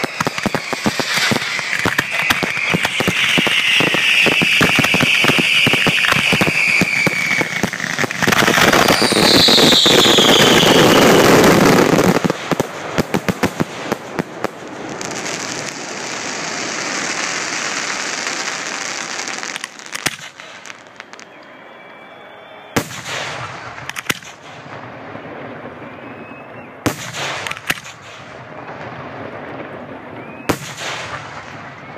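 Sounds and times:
fireworks whistles falling in pitch: 0:00.0 - 0:12.6, 0:15.0 - 0:24.0, 0:25.7 - 0:27.6, 0:30.1 - 0:31.9
fireworks crackling and bangs: 0:00.0 - 0:21.8, 0:22.8 - 0:31.9.

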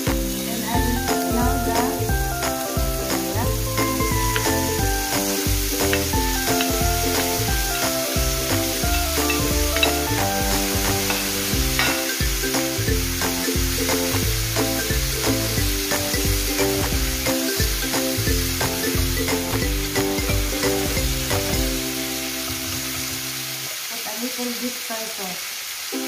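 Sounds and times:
background music: 0:00.0 - 0:23.5
bitter melon sizzling in frying pan: 0:00.0 - 0:26.0
wooden spoon stirring: 0:08.6 - 0:12.0.

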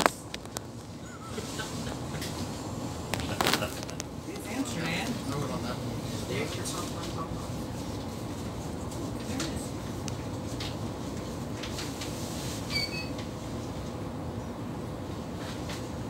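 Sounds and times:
short high squeak: 0:12.6 - 0:13.2.

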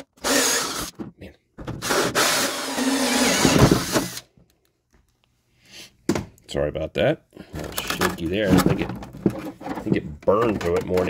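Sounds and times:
power drill with hole saw: 0:00.0 - 0:00.9, 0:01.8 - 0:04.2.

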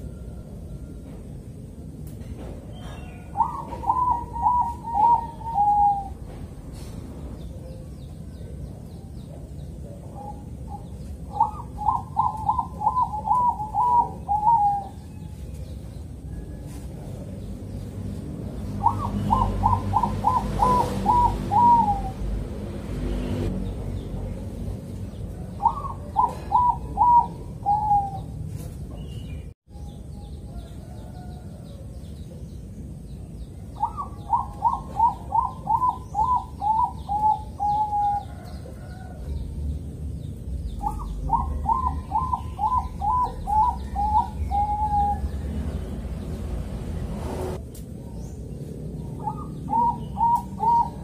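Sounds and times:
dove cooing song: 0:02.7 - 0:22.6, 0:25.0 - 0:28.7, 0:33.7 - 0:39.9, 0:40.6 - 0:46.2, 0:49.0 - 0:51.0.

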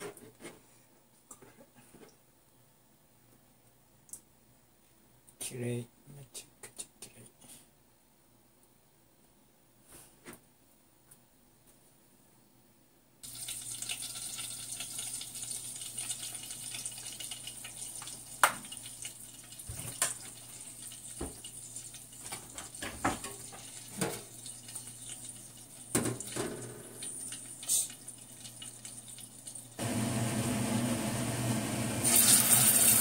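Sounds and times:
pots hissing on gas stove: 0:13.2 - 0:33.0.

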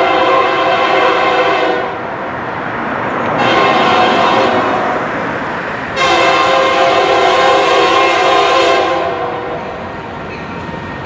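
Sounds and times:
locomotive air horn blasts: 0:00.0 - 0:02.0, 0:03.3 - 0:05.0, 0:06.0 - 0:09.8
train rumble: 0:00.0 - 0:11.0.

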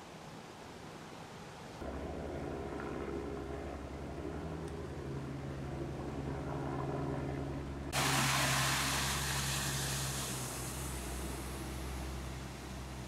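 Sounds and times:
diesel truck engine droning: 0:01.8 - 0:13.0
rush of water spray: 0:08.0 - 0:13.0.

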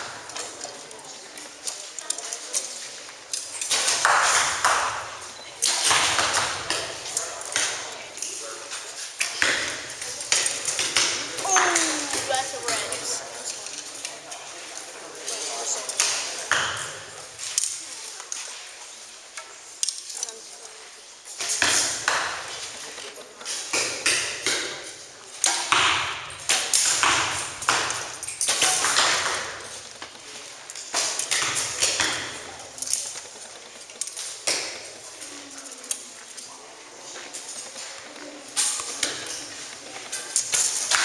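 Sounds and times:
arrow hits: 0:30.9 - 0:32.5.

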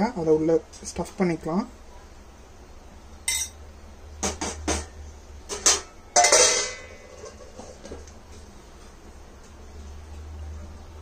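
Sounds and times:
spoon clinking against glass bowl: 0:03.3 - 0:03.6.

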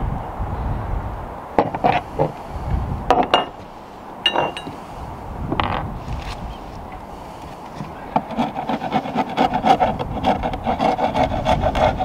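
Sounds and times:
metal knocks and clinks: 0:03.1 - 0:03.6, 0:04.2 - 0:04.8.

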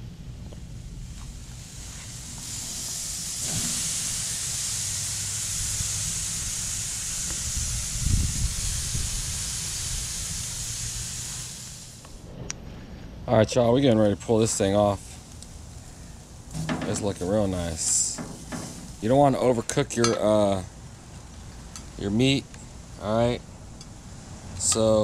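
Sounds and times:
steak sizzling on a grill: 0:00.9 - 0:12.0, 0:16.5 - 0:19.3
thump: 0:16.6 - 0:17.0, 0:18.2 - 0:18.9.

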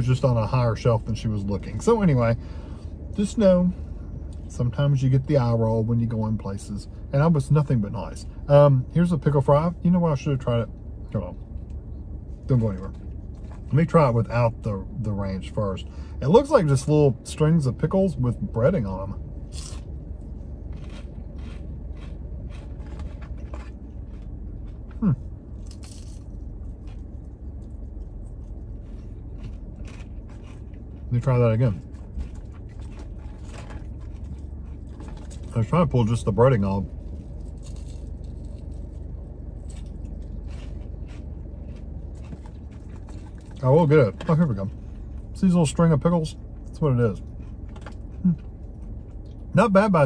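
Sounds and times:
low steady hum: 0:00.0 - 0:50.0
crunchy chewing: 0:19.4 - 0:35.6, 0:36.6 - 0:43.6.

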